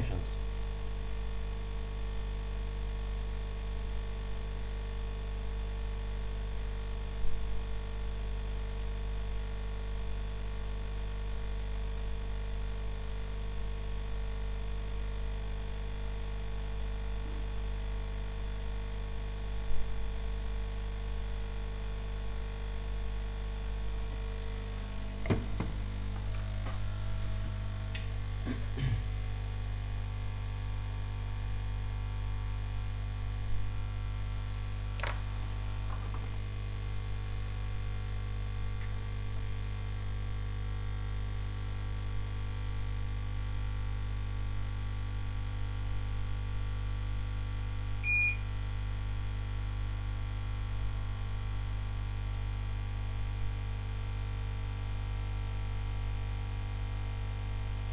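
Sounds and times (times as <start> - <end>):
electrical hum: 0.0 - 57.9
short single-pitched beep: 48.0 - 48.5.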